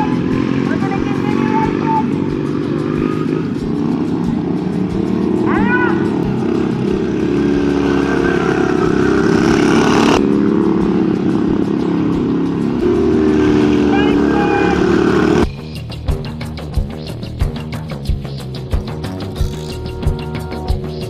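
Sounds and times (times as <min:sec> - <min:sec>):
small engines running hard: 0:00.0 - 0:15.5
rising and falling tone: 0:06.2 - 0:15.4.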